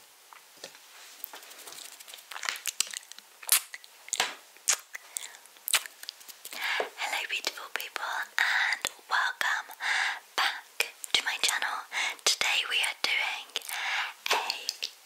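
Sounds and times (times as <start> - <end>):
wet mouth clicks and smacks: 1.7 - 6.7, 13.6 - 15.0.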